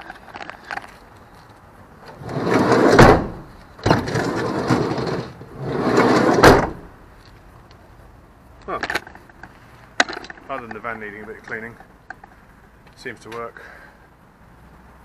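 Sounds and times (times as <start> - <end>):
sliding van door rolling: 2.0 - 6.9
van door thud: 2.3 - 6.9.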